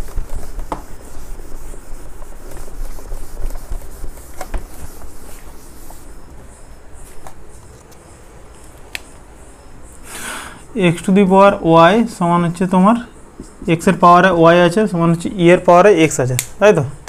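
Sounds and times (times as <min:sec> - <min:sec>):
cloth scrubbing a whiteboard: 0:00.0 - 0:07.3.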